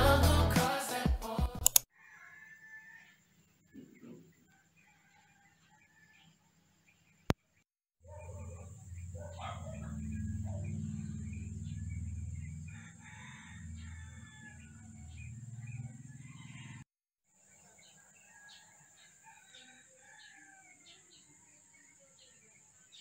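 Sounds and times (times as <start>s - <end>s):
rooster crowing: 1.9s - 3.2s, 4.5s - 6.3s, 8.3s - 16.9s, 17.9s - 21.0s
small birds chirping: 6.8s - 16.8s, 17.4s - 23.0s
low steady hum: 8.5s - 12.8s.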